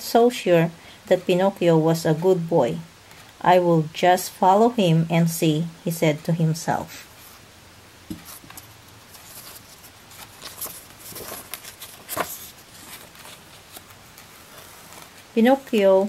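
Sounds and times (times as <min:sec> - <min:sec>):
page turning swish: 0:08.1 - 0:15.3
paper rustling: 0:08.1 - 0:16.0.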